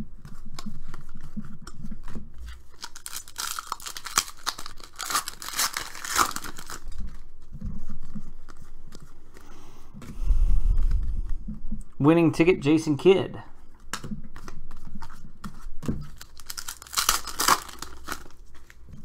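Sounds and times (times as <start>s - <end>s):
foil wrapper tearing and crinkling: 2.6s - 7.3s, 16.0s - 18.9s.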